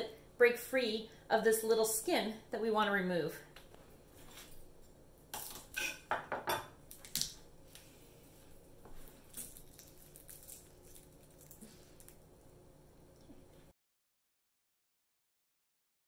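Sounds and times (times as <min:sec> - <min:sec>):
garlic skin peeling: 0:09.0 - 0:12.3.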